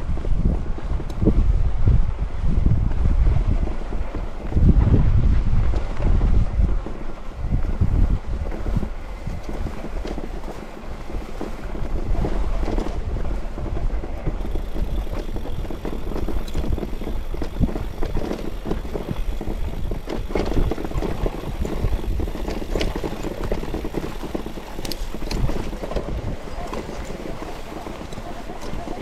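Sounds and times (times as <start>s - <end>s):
wind buffeting microphone: 0.0s - 29.0s
bike knocks and rattles: 3.6s - 29.0s.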